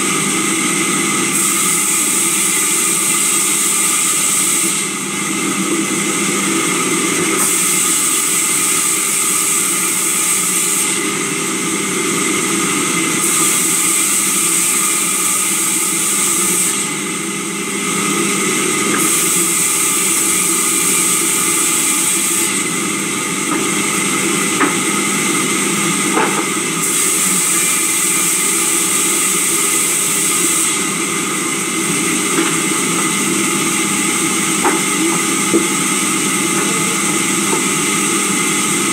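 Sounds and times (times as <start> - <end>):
sawmill saw humming: 0.0 - 38.9
saw hissing through timber: 1.3 - 5.0, 7.4 - 11.2, 13.2 - 17.0, 19.0 - 22.8, 26.8 - 32.8.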